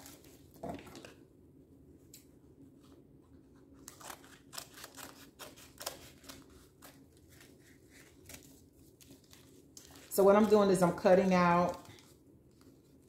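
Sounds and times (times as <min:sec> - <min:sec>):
scissors snipping paper: 0:03.8 - 0:13.0.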